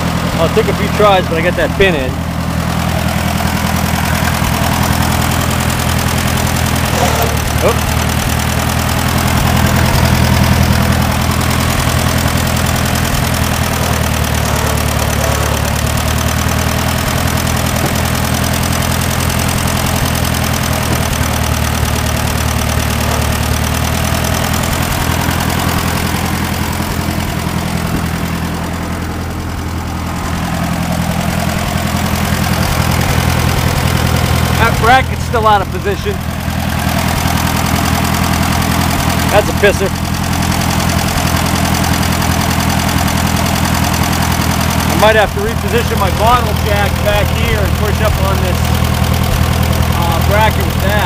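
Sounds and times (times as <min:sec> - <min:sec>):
tractor engine idling: 0:00.0 - 0:51.0.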